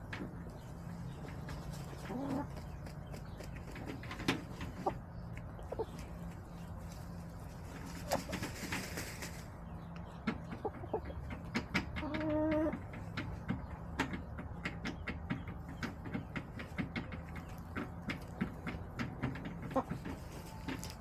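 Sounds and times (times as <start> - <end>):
hens pecking in dry dirt: 0.0 - 21.0
rustle: 5.8 - 9.5.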